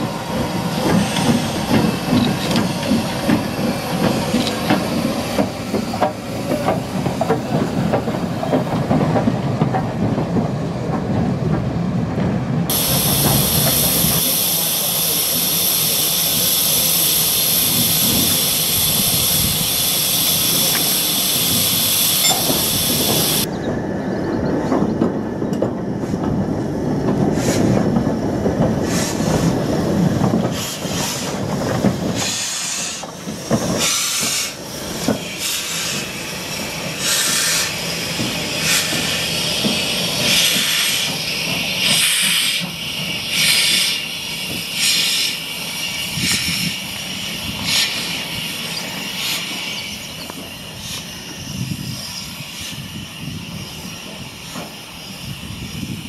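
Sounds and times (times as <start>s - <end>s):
steam hissing: 0.0s - 8.7s, 12.7s - 23.5s, 28.7s - 56.0s
steam locomotive rumbling: 0.0s - 56.0s
sharp steam blasts: 12.7s - 23.5s, 27.2s - 28.0s, 28.7s - 56.0s.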